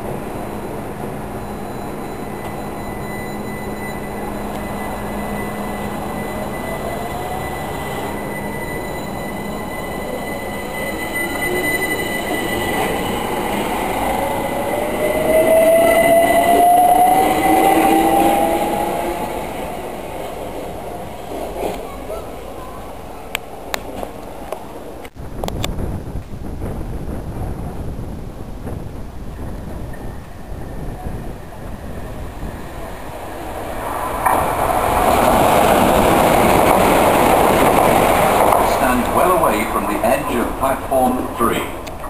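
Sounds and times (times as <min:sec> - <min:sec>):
electric train motor whine: 0:00.3 - 0:20.8.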